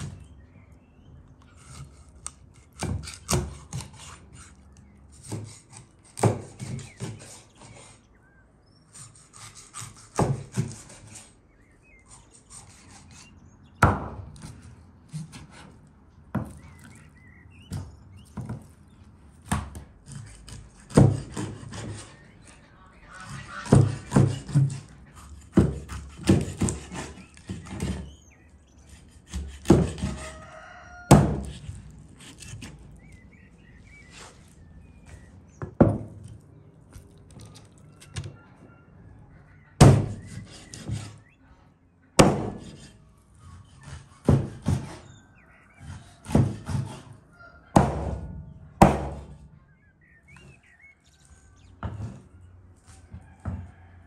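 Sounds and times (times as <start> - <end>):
birds chirping faintly: 0.0 - 47.7, 48.4 - 54.0
axe chopping wood: 13.8 - 14.6, 31.1 - 31.6, 39.8 - 40.2, 42.2 - 42.8, 44.2 - 45.0, 47.8 - 49.4.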